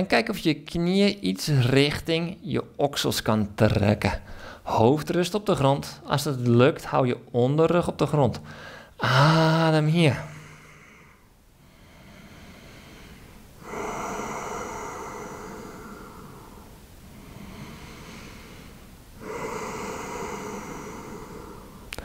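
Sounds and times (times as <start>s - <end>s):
man breathing deeply: 4.2s - 4.7s, 8.5s - 9.0s, 10.2s - 22.0s.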